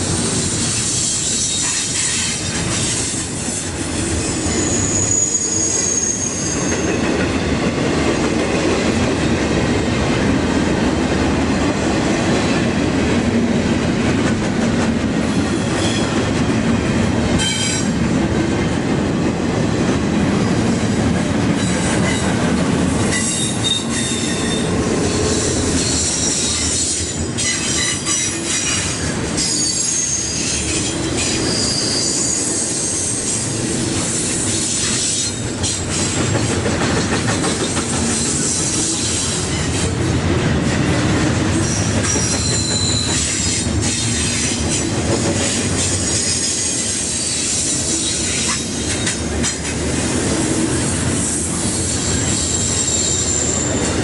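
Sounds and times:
steel wheels rumbling on rail: 0.0s - 54.0s
high wheel squeal: 4.4s - 7.1s, 23.1s - 33.4s, 41.6s - 44.4s, 45.9s - 48.4s.

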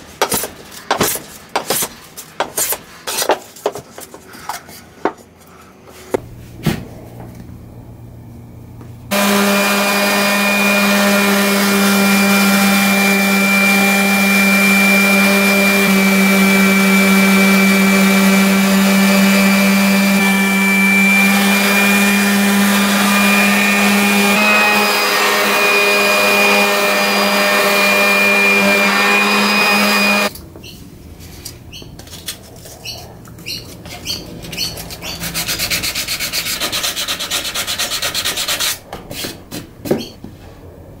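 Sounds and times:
orbital sander humming: 9.1s - 30.3s.

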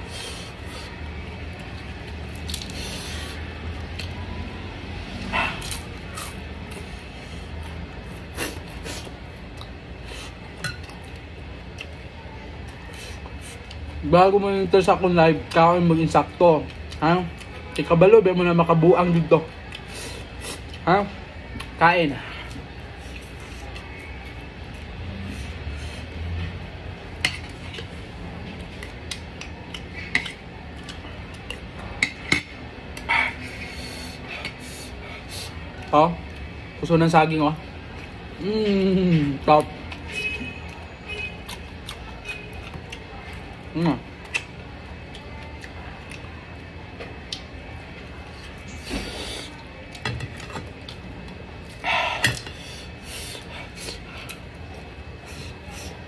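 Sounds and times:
chewing: 27.4s - 31.8s, 40.7s - 43.6s, 53.3s - 56.0s.

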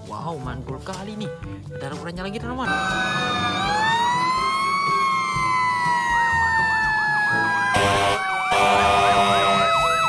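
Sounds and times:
wailing siren: 2.7s - 10.0s
yelping siren: 2.7s - 10.0s
harsh horn blasts: 7.7s - 9.6s.

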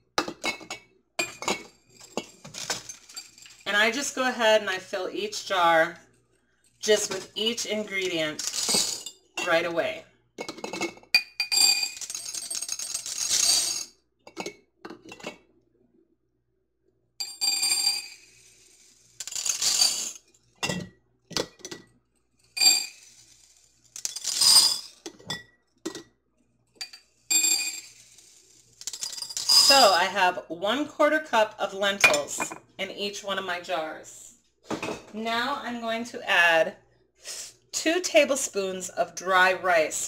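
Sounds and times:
lentils pouring into glass jar: 8.3s - 9.0s, 11.9s - 13.8s, 18.0s - 20.2s, 22.6s - 24.8s, 27.4s - 30.0s.

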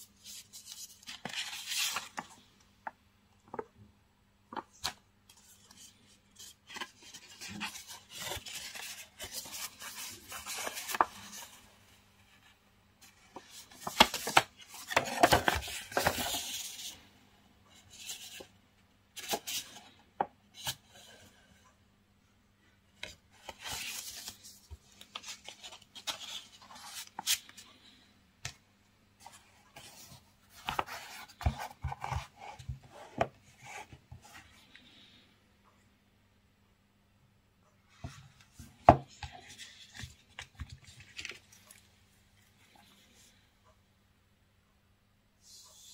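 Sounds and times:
paper rustling and crinkling: 0.1s - 2.5s, 4.5s - 11.7s, 13.0s - 17.0s, 23.0s - 28.0s, 38.6s - 41.9s.

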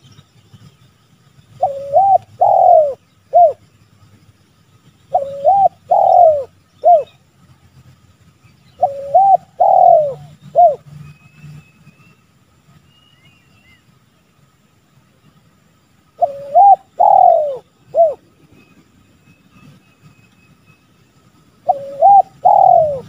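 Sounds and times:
dove cooing: 1.6s - 3.6s, 5.1s - 7.2s, 8.8s - 10.8s, 16.2s - 18.3s, 21.6s - 23.0s.

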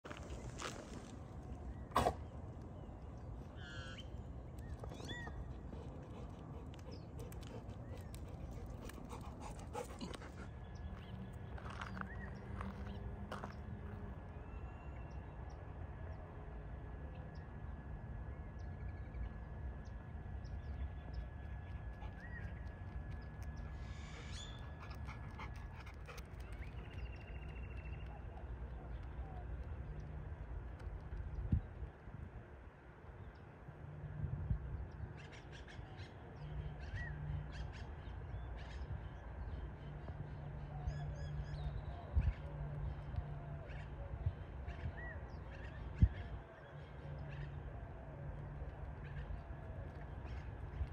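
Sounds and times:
birds calling and chirping: 0.1s - 13.8s, 22.0s - 31.6s.

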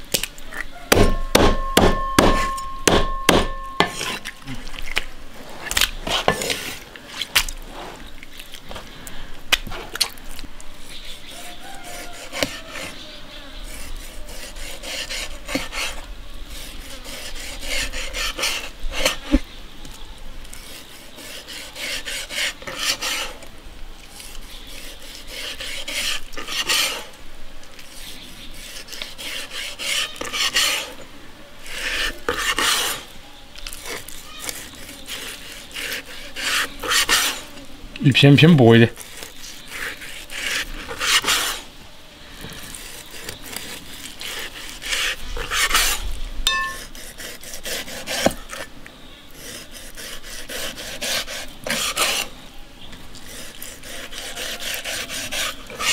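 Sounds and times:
cleaver chopping fish bone: 0.9s - 4.2s
knife scraping cutting board: 1.0s - 4.4s, 5.5s - 8.0s, 11.1s - 13.0s, 13.6s - 16.0s, 16.6s - 19.5s, 20.5s - 23.4s, 24.1s - 27.1s, 27.9s - 31.0s, 31.7s - 33.1s, 33.7s - 37.4s, 39.0s - 41.6s, 42.6s - 48.7s, 49.4s - 52.3s, 53.2s - 55.9s.

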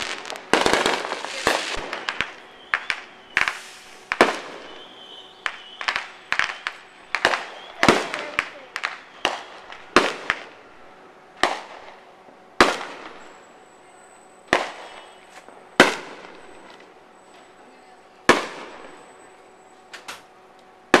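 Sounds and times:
firework shells bursting: 0.0s - 10.6s.

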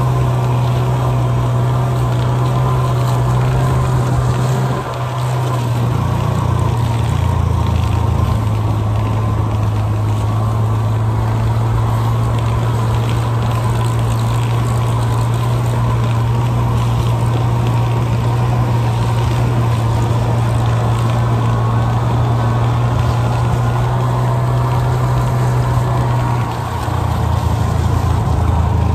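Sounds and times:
snowmobile engine droning: 0.0s - 28.9s.

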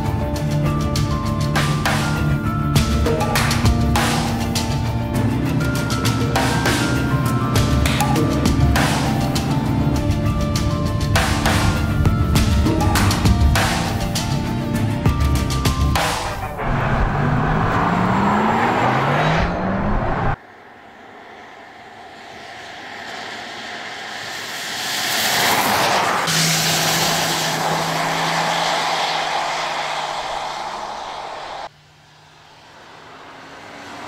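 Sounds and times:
car low hum: 16.2s - 34.0s
electric car whine: 16.3s - 34.0s
tyres hissing on wet road: 21.0s - 34.0s.

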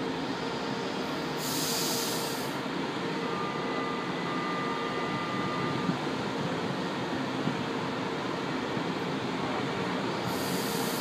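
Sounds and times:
train rumble: 0.0s - 11.0s
compressed-air hiss: 1.4s - 2.6s, 10.2s - 11.0s.

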